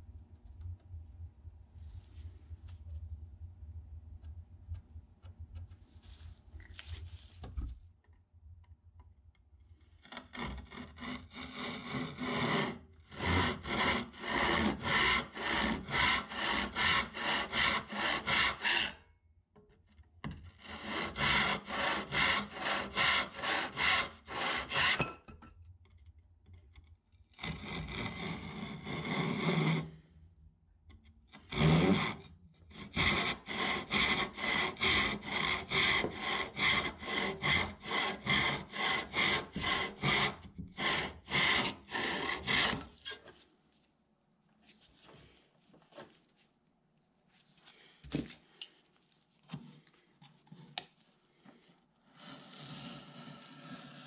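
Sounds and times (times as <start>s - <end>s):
hand saw cutting wood: 10.0s - 19.0s, 20.5s - 25.1s, 27.4s - 29.9s, 31.3s - 43.2s, 52.1s - 54.0s.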